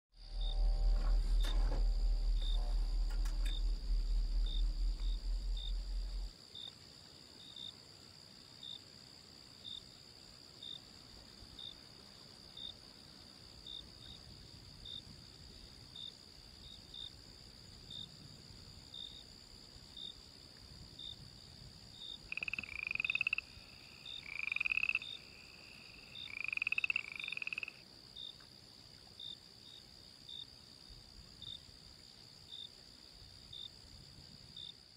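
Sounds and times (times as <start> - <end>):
low hum: 0.1 - 6.3
frog croaking: 0.2 - 6.3, 22.2 - 27.8
crickets trilling: 0.2 - 34.9.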